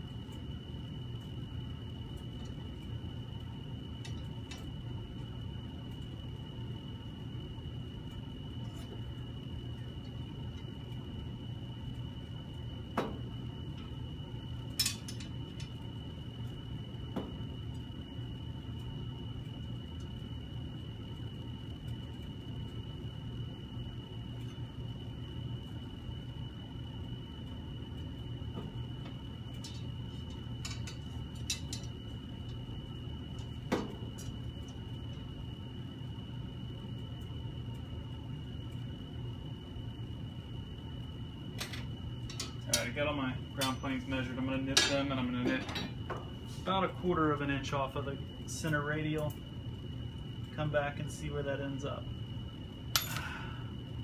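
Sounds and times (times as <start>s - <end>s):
faint high whine: 0.0s - 54.0s
low room hum: 0.0s - 54.0s
clicks of wire and hand tools: 14.8s - 15.7s, 29.6s - 32.0s, 41.6s - 42.9s, 52.9s - 53.4s.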